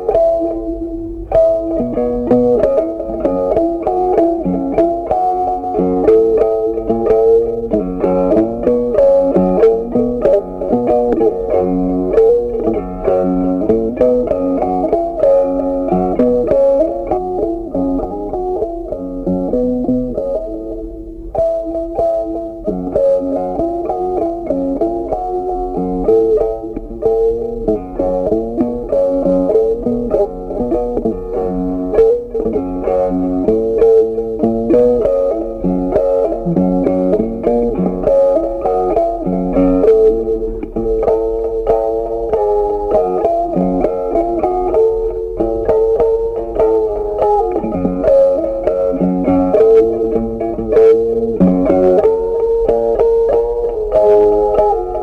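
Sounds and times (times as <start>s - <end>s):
plucked guitar tune with beat: 0.0s - 55.0s
bass line: 26.8s - 41.6s.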